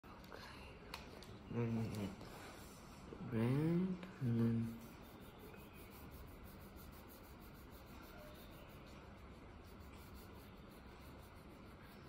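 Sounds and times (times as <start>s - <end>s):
oil pastel scratching on paper: 4.4s - 12.0s.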